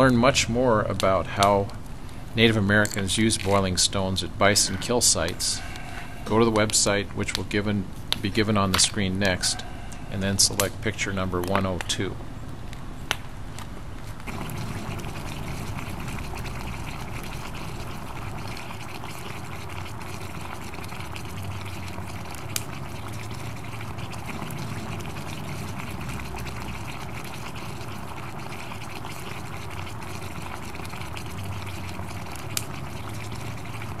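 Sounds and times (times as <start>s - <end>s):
water bubbling around hot stones: 14.2s - 34.0s.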